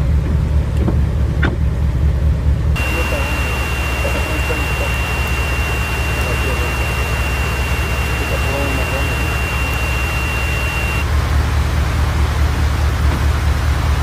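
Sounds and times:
vehicle engine idling: 0.0 - 14.0
thin high whine: 2.8 - 11.1.

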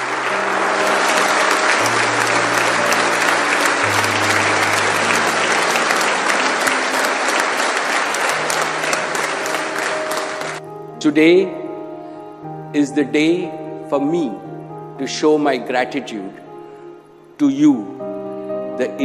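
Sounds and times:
audience applauding: 0.0 - 10.6
low sustained background music: 0.0 - 19.0.

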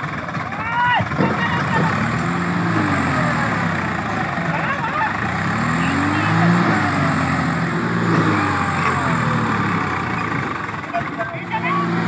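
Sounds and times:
tractor diesel engine revving: 0.0 - 12.0.

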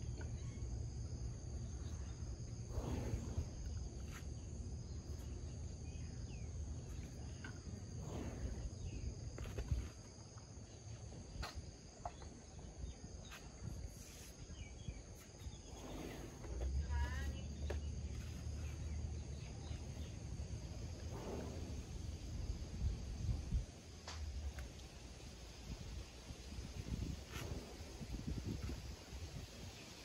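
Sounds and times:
high-pitched insect chorus: 0.1 - 30.0
low rumble: 14.9 - 29.5.

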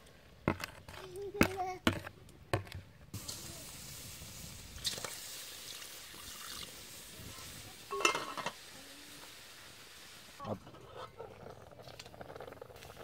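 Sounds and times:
liquid pouring into metal pot: 4.8 - 6.7
metal pot lid clattering: 7.9 - 8.6.

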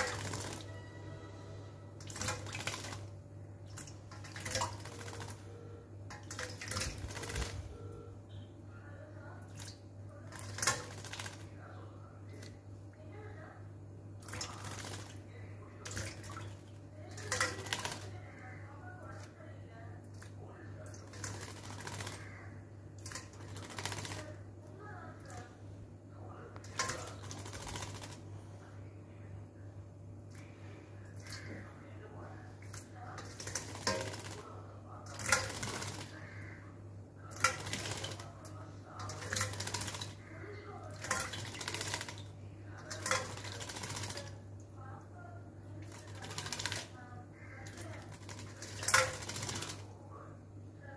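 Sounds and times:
bird splashing in water bowl: 0.0 - 0.7, 2.0 - 5.5, 6.1 - 7.7, 9.4 - 11.6, 12.3 - 12.6, 14.2 - 19.4, 20.1 - 24.5, 26.5 - 28.3, 30.3 - 31.8, 32.4 - 36.6, 37.2 - 44.8, 45.6 - 50.0
steady low hum: 0.0 - 50.9.

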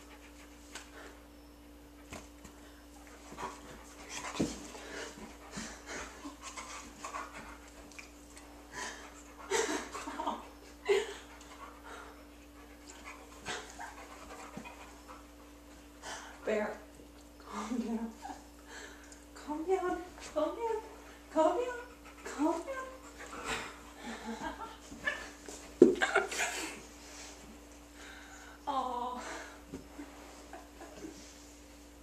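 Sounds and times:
dog panting: 3.0 - 16.4, 21.0 - 25.2.

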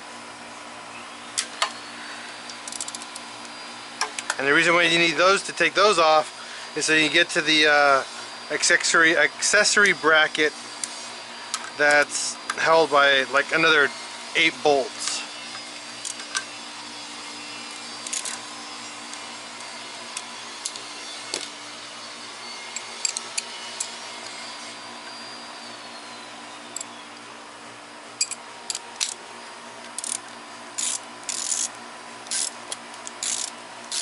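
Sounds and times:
steady hum: 0.0 - 34.0
ratchet wrench ratcheting: 2.6 - 3.1, 18.0 - 18.4, 28.2 - 29.2, 30.0 - 30.2, 30.8 - 34.0.

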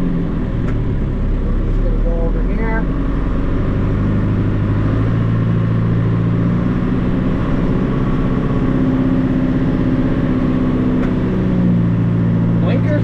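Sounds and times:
tractor diesel engine running: 0.0 - 13.0.

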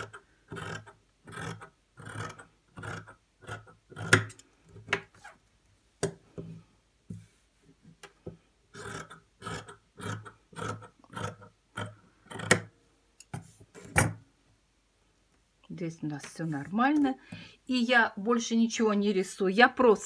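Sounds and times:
scissors cutting fabric: 0.0 - 4.4.

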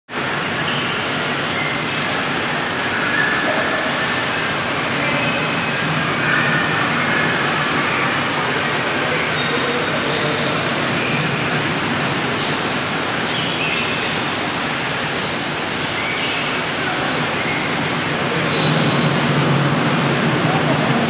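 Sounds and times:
rushing water: 0.1 - 21.0.

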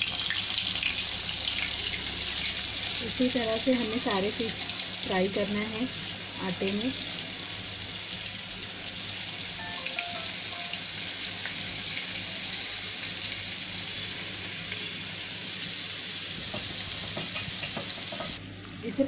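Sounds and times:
fish frying in oil: 0.0 - 18.4.

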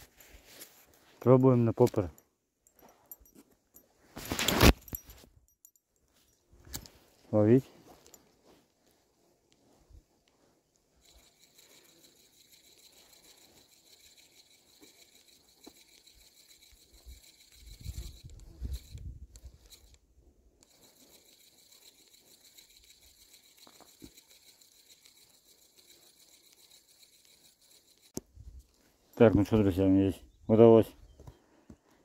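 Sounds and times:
fishing reel ticking whir: 11.0 - 20.0, 20.6 - 28.2.

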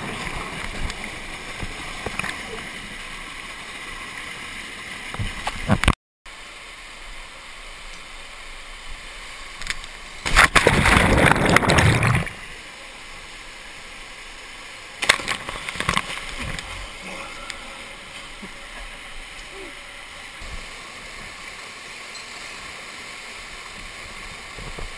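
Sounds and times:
stream water rushing over rocks: 0.0 - 24.9
short sharp splashes: 10.2 - 12.3.

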